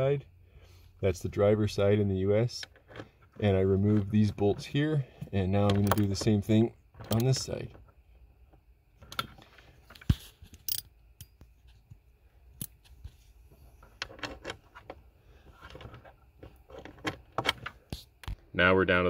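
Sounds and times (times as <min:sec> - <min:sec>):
socket ratchet clicking: 0:07.1 - 0:07.4
metallic clinks and taps: 0:10.5 - 0:11.5.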